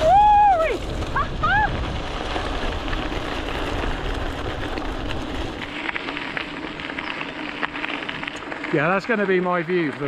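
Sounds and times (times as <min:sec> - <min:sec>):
wind rumble on microphone: 0:00.0 - 0:05.7
bike tyres rolling on gravel: 0:00.0 - 0:10.0.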